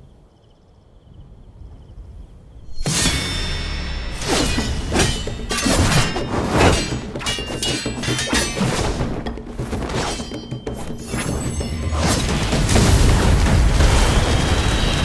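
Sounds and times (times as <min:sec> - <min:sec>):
loud crash: 0:02.7 - 0:07.1, 0:11.8 - 0:15.0
background music: 0:02.7 - 0:15.0
heavy impacts and shattering crashes: 0:02.7 - 0:15.0.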